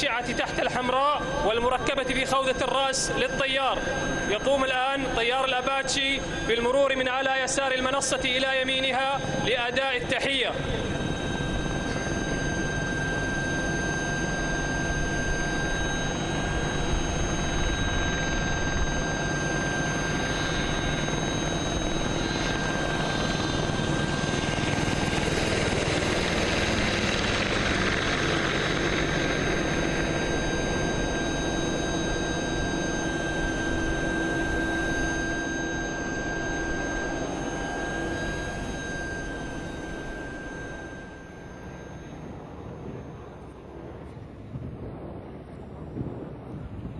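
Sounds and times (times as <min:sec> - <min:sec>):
helicopter flying past: 0:00.0 - 0:46.9.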